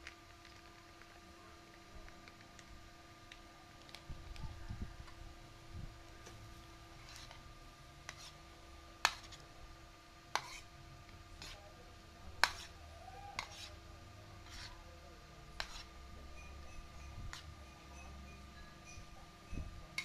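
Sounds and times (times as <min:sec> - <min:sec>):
cutlery clinking and scraping a plate: 0:10.4 - 0:10.6, 0:12.4 - 0:12.8, 0:13.4 - 0:13.8, 0:14.4 - 0:14.8, 0:15.6 - 0:18.3.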